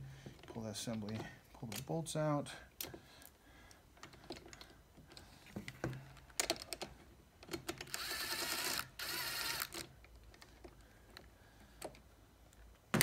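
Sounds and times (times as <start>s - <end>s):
metal parts clicking and knocking: 4.0s - 8.8s
cordless driver whirring: 7.8s - 9.9s.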